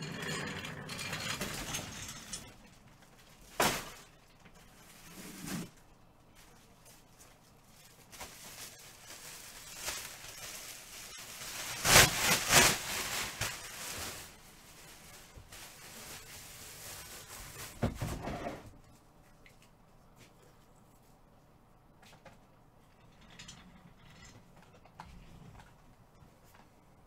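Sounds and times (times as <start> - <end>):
packaging rustling and tearing: 7.8 - 17.9.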